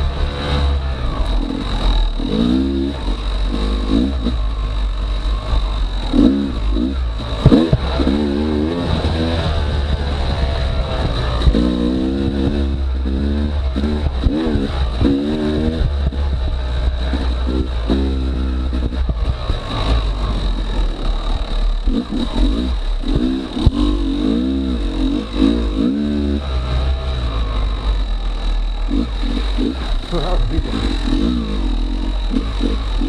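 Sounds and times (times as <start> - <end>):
dirt bike engine revving: 0.0 - 33.0.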